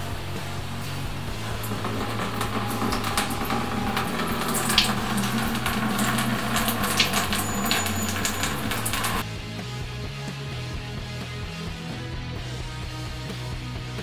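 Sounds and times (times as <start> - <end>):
wine splashing and trickling: 1.3 - 9.2.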